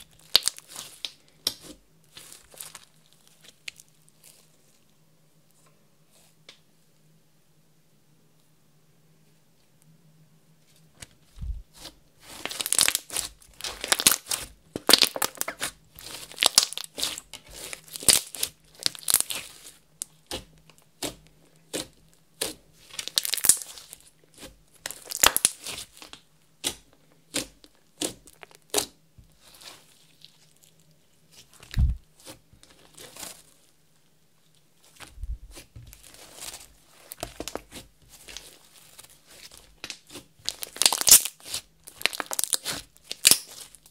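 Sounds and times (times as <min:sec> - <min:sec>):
slime squishing and crackling: 0:00.0 - 0:04.8, 0:11.4 - 0:33.8, 0:34.4 - 0:43.9.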